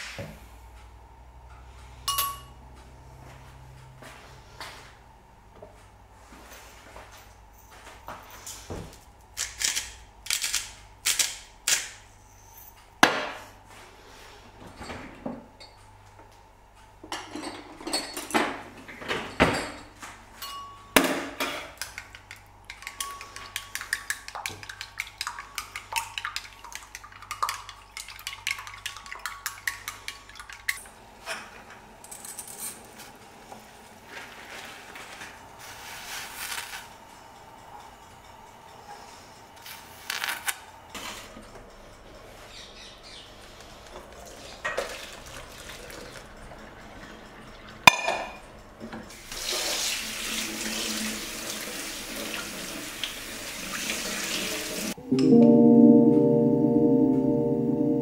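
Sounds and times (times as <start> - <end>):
chopsticks beating eggs in glass bowl: 21.9 - 30.8
boiling water hiss: 34.0 - 37.0, 49.1 - 55.0.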